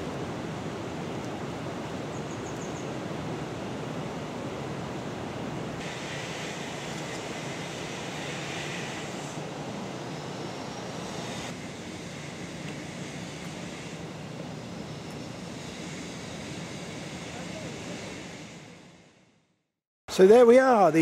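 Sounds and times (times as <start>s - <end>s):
outdoor background rush: 0.0s - 21.0s
high hiss: 5.8s - 19.4s.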